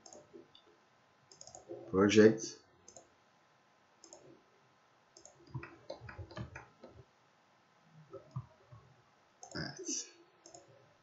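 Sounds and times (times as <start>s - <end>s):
computer mouse clicking: 0.0s - 0.3s, 1.3s - 1.7s, 2.9s - 3.1s, 4.0s - 4.3s, 5.2s - 7.0s, 9.4s - 9.7s, 10.4s - 10.7s.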